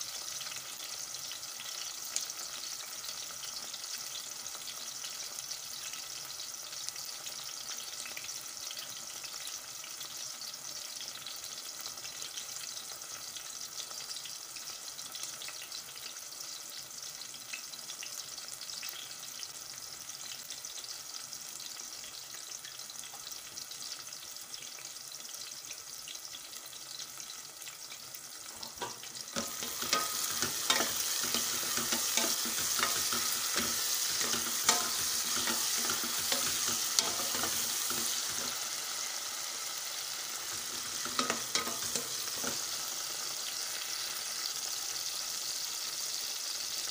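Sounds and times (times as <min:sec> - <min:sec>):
vegetables sizzling in oil: 0:00.0 - 0:46.9
wooden spatula scraping pot: 0:28.6 - 0:38.6.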